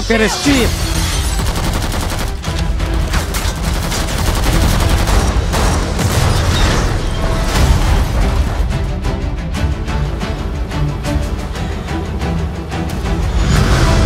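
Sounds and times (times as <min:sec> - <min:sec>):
machine-gun fire: 0:01.4 - 0:02.6, 0:03.4 - 0:06.4.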